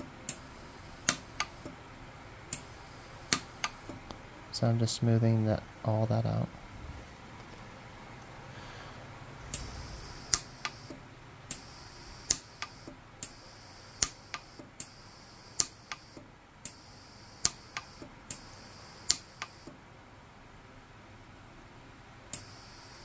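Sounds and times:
welder snapping pulses: 0.0s - 1.8s, 2.5s - 4.1s, 9.5s - 16.8s, 17.4s - 19.7s.

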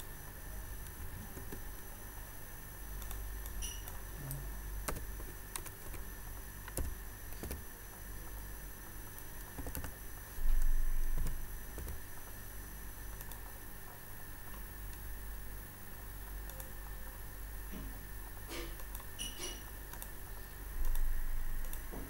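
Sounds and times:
low steady hum: 0.0s - 22.0s
keyboard keys clicking: 4.8s - 6.0s, 6.7s - 7.6s, 9.4s - 10.0s, 10.6s - 12.0s.

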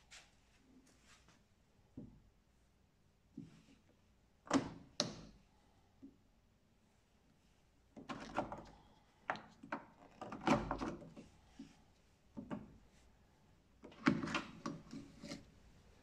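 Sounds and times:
plastic door handle clicking and rattling: 4.5s - 5.3s, 8.0s - 8.7s, 9.3s - 11.2s, 13.8s - 15.3s.

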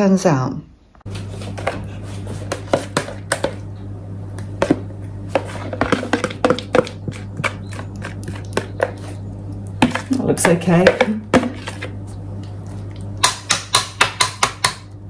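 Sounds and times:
low hum: 0.7s - 15.0s
spoon scraping plastic jug: 5.3s - 12.0s.

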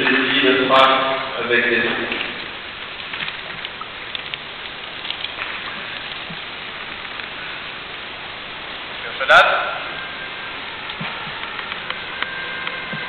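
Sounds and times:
steady background hiss: 0.0s - 13.0s
faint clicks: 2.1s - 8.0s, 10.8s - 13.0s.

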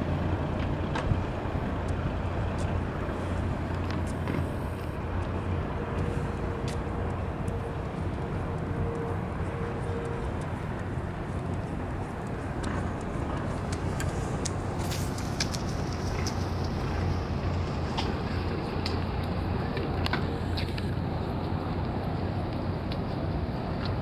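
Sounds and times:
boat engine drone: 0.0s - 24.0s.

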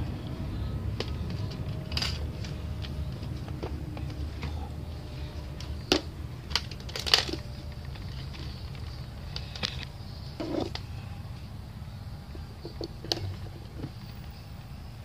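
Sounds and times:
steady low hum: 0.0s - 15.0s
handling clicks and knocks: 0.9s - 4.7s, 5.5s - 10.9s, 12.4s - 14.4s.

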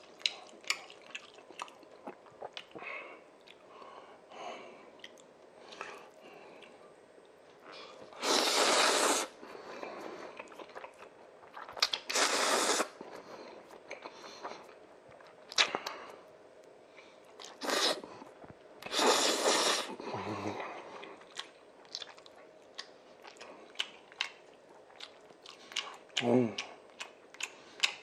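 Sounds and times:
wet chewing and smacking: 0.0s - 2.8s, 5.0s - 7.7s, 10.0s - 12.2s, 13.0s - 17.6s, 20.6s - 28.0s
loud noodle slurping: 8.2s - 9.4s, 12.1s - 13.0s, 17.6s - 18.1s, 18.9s - 20.0s.

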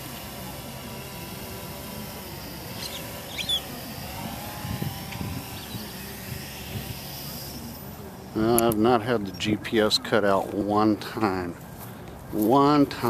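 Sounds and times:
drone motors whining: 0.0s - 13.0s
bird chirp: 2.8s - 3.8s.

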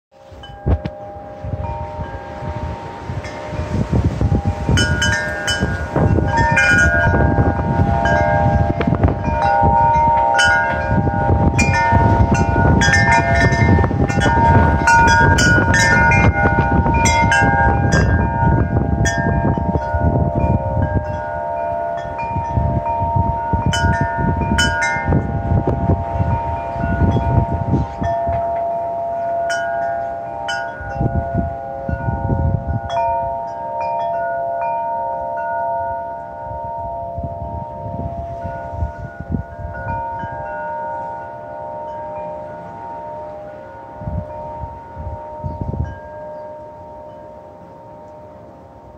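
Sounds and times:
wind rushing through trees: 0.1s - 48.9s
wind chimes ringing: 0.2s - 48.9s.

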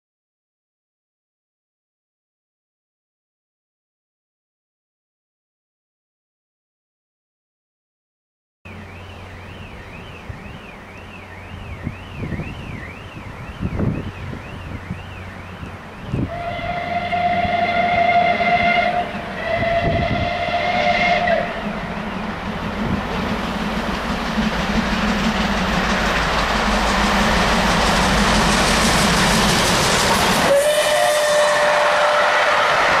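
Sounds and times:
train rushing past: 8.7s - 33.0s
steam locomotive whistle: 8.8s - 22.3s, 28.1s - 33.0s.

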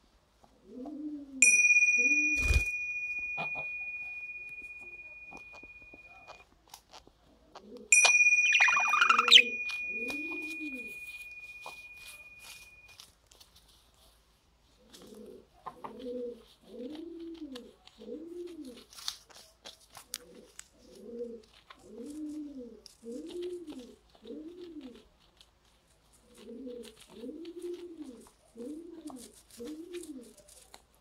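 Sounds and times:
pigeon cooing: 0.6s - 1.4s, 8.5s - 11.8s, 14.9s - 19.0s, 20.2s - 25.4s, 26.2s - 30.6s.

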